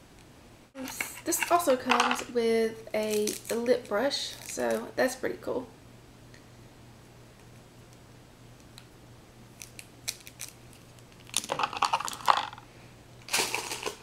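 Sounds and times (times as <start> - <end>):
plastic items clicking: 0.8 - 2.3, 11.2 - 12.6, 13.3 - 14.0
packaging rustling and clattering: 9.6 - 12.6, 13.3 - 14.0.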